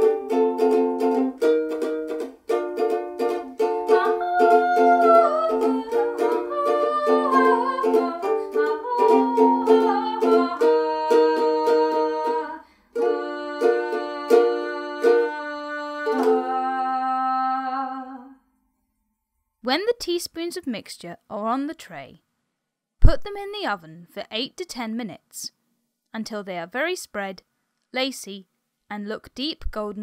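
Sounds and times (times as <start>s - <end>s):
ukulele strumming chords: 0.0s - 17.6s
woman singing: 3.3s - 18.4s.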